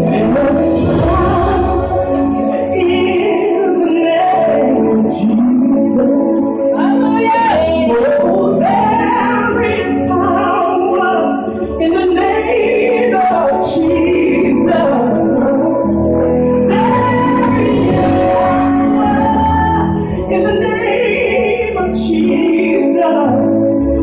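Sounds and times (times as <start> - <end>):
woman singing gospel: 0.0 - 15.9, 16.7 - 24.0
instrumental backing: 0.0 - 24.0.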